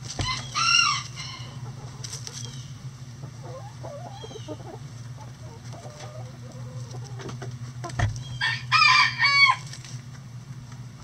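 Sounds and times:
rooster crowing: 0.2s - 1.6s, 8.4s - 9.7s
chickens clucking: 0.2s - 9.8s.

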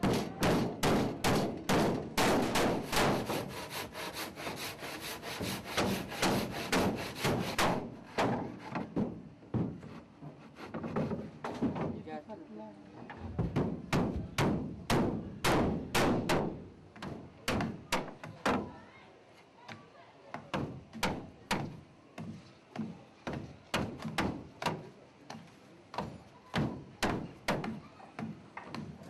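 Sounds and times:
hammer striking nails into wood: 0.0s - 3.5s, 5.4s - 9.7s, 13.5s - 18.6s, 26.0s - 28.3s.

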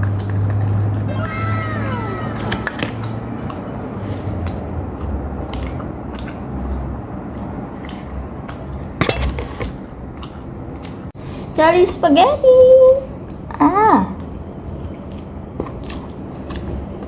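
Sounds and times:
chewing fried chicken: 0.0s - 9.0s, 9.6s - 11.1s, 13.1s - 17.0s
wet mouth clicks: 4.3s - 8.9s.

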